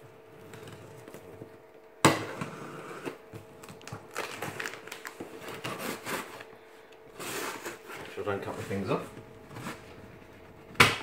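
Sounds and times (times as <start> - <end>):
cardboard and tape rustling: 3.2 - 10.5.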